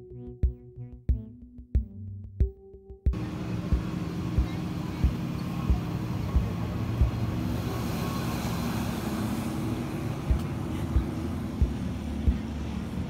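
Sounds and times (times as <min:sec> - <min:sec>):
car driving rumble: 0:03.2 - 0:13.0.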